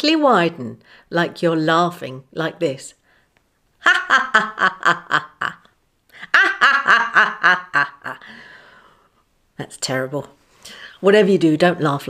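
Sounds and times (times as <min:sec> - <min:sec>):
woman laughing: 0:03.8 - 0:08.3.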